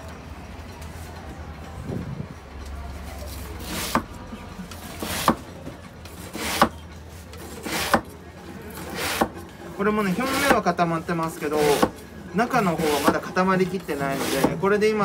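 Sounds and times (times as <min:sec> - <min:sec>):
knife rasping through rice slab: 0:07.5 - 0:08.0, 0:08.8 - 0:09.4, 0:10.0 - 0:10.6, 0:14.0 - 0:14.6.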